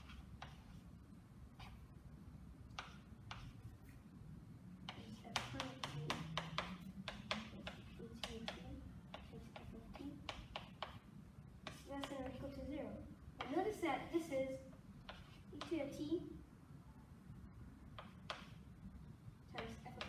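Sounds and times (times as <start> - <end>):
chalk tapping on blackboard: 0.0 - 0.8, 2.7 - 3.6, 4.8 - 12.4, 15.0 - 15.8, 17.9 - 18.6, 19.5 - 20.0.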